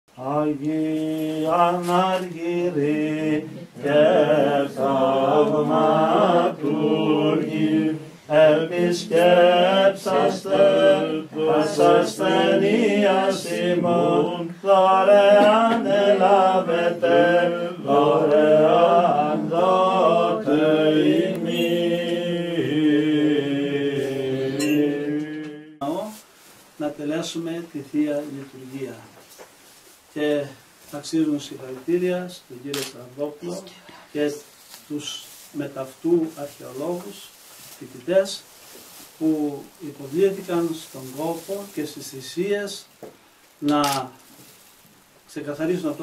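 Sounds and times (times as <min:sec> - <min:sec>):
voices chanting: 0:00.2 - 0:25.9.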